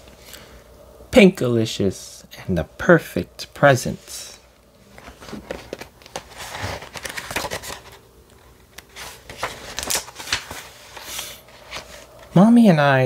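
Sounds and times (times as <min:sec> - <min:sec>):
book pages turning: 0:04.3 - 0:12.4.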